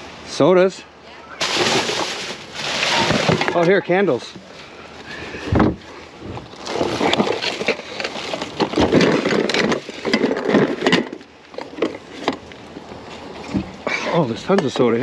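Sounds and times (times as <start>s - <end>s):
plastic and cardboard rustling: 1.4s - 4.6s, 5.5s - 13.8s.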